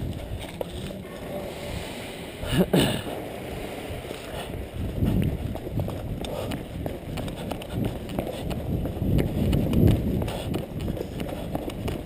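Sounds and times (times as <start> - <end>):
running footsteps on concrete: 0.0 - 1.2, 4.2 - 12.0.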